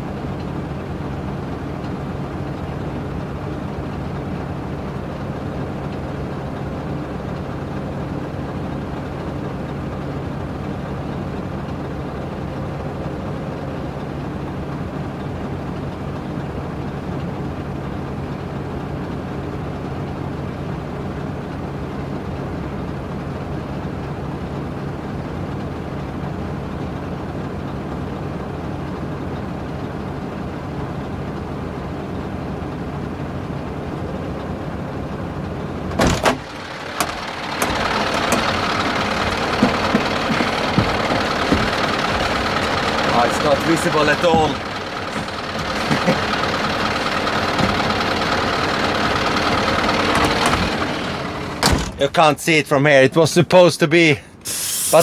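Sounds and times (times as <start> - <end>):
diesel engine idling: 0.0 - 55.0
sharp knocks: 36.0 - 42.8, 44.0 - 46.1
hissing noise with clicks: 54.4 - 55.0.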